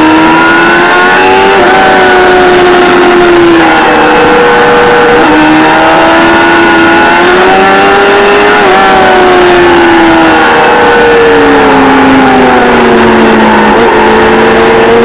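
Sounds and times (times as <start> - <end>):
motorcycle engine at high revs: 0.0 - 15.0.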